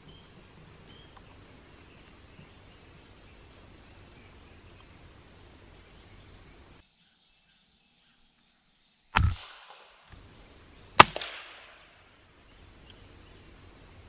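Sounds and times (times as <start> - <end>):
faint woodland background: 0.0 - 14.0
suppressed rifle shots: 9.2 - 9.9, 11.0 - 12.0.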